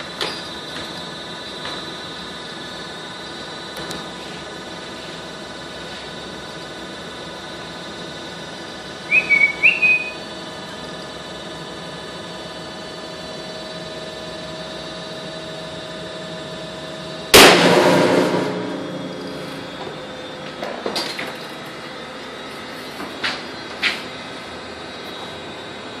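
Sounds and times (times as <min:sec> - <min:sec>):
testing machine hum: 0:17.1 - 0:20.9
steel bar snapping with loud bang: 0:17.4 - 0:19.8.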